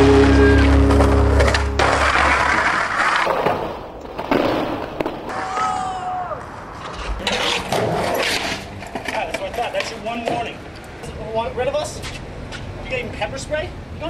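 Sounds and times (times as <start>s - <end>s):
skateboard wheels rolling: 0.0s - 11.3s.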